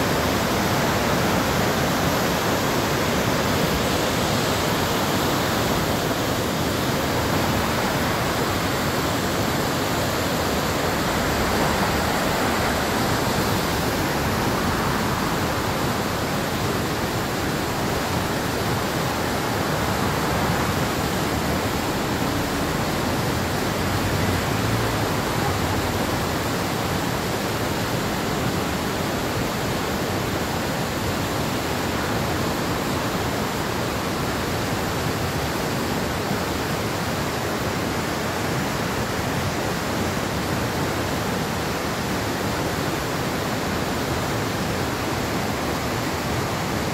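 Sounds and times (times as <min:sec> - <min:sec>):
river rapids rushing: 0:00.0 - 0:46.9.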